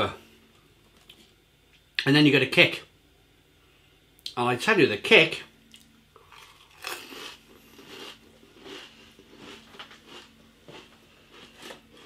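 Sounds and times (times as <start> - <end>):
person chewing crisps: 5.7 - 12.0.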